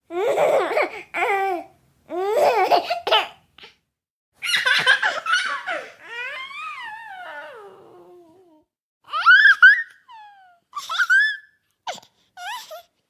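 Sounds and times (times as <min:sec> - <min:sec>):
baby vocal sound sliding downward: 0:06.0 - 0:08.6.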